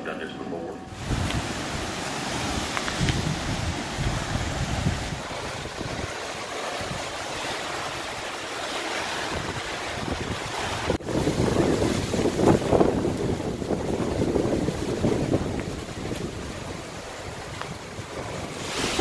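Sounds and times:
gusty wind: 0:00.8 - 0:19.0
waves washing onto shore: 0:00.9 - 0:19.0
wind buffeting microphone: 0:00.9 - 0:19.0.

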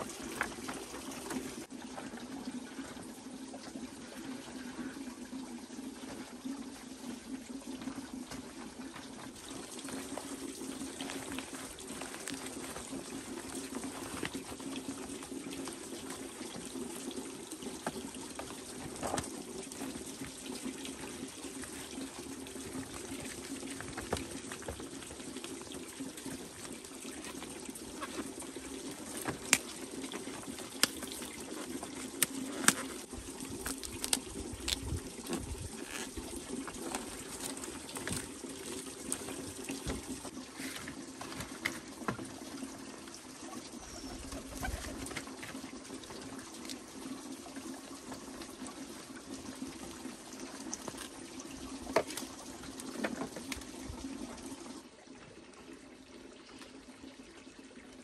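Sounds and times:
water running into metal basin: 0:00.0 - 0:44.0
sharp clicks of leaves handled: 0:32.1 - 0:36.0.

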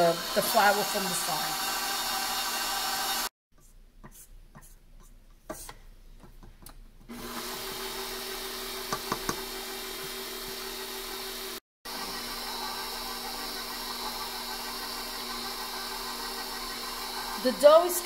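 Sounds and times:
stand mixer motor running: 0:00.0 - 0:03.3, 0:07.1 - 0:18.0.

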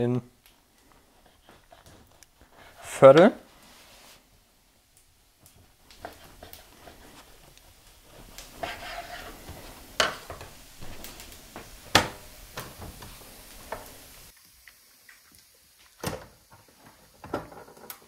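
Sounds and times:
flatbread rustling and crackling: 0:00.4 - 0:14.4.

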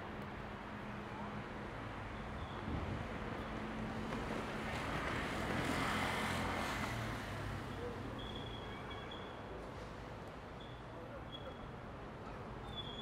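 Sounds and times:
vehicle passing by: 0:04.3 - 0:07.7.

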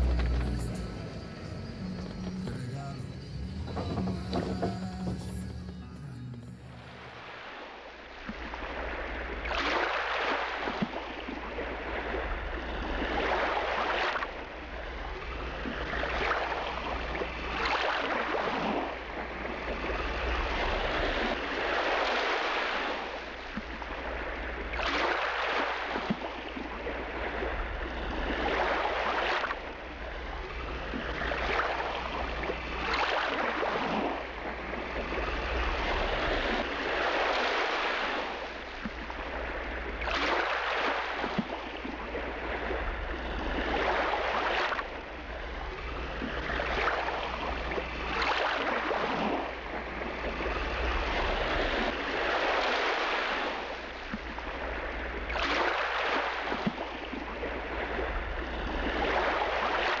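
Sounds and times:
boat engine drone: 0:00.0 - 0:09.4, 0:26.7 - 0:56.5
rushing water: 0:00.0 - 1:00.0
wind: 0:00.0 - 1:00.0.

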